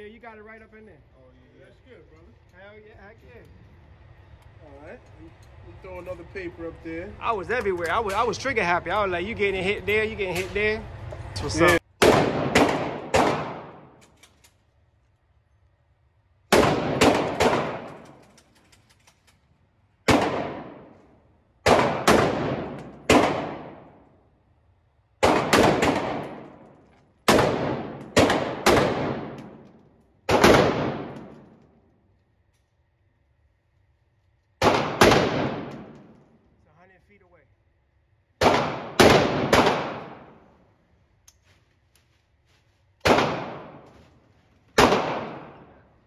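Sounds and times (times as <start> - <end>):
rifle shots echoing indoors: 11.9 - 14.0, 16.3 - 18.3, 19.9 - 24.5, 25.1 - 32.3, 34.4 - 36.4, 38.1 - 40.8, 43.0 - 44.1, 44.7 - 46.0.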